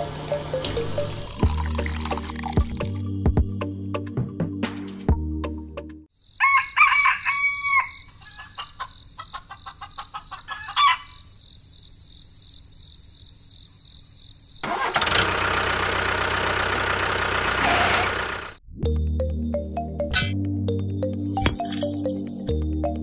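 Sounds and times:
rooster crowing: 0:06.4 - 0:08.9, 0:10.2 - 0:11.2
motor running: 0:14.9 - 0:18.6.

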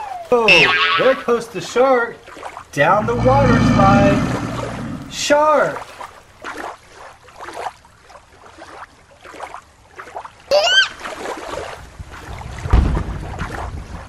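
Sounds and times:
water sloshing and splashing: 0:05.9 - 0:12.6.

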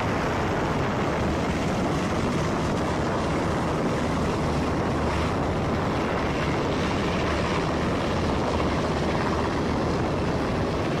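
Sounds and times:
helicopter rotor and turbine: 0:00.0 - 0:11.0.

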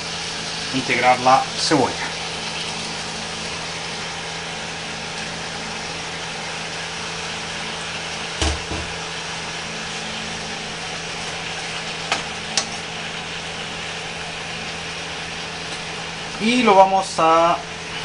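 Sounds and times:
meat sizzling in a frying pan: 0:00.0 - 0:18.0
knock: 0:08.4 - 0:09.0.

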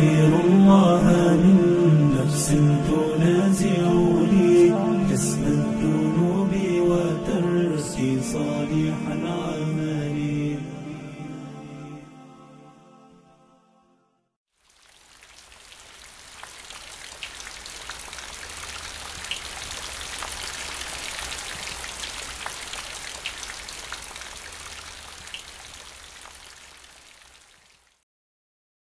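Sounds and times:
rain falling: 0:14.5 - 0:28.0.

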